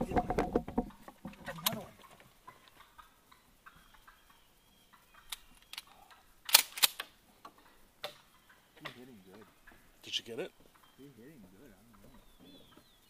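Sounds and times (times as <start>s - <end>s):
small clicks: 5.3s - 7.1s.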